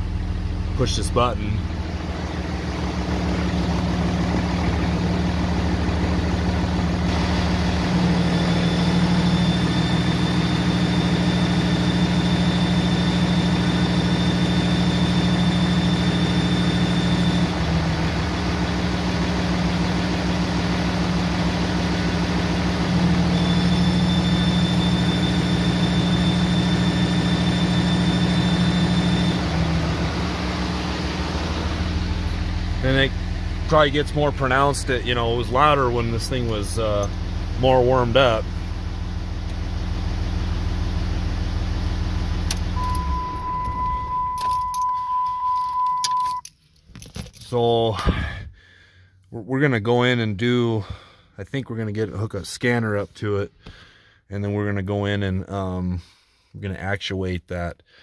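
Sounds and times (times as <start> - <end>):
diesel engine idling: 0.0 - 44.4.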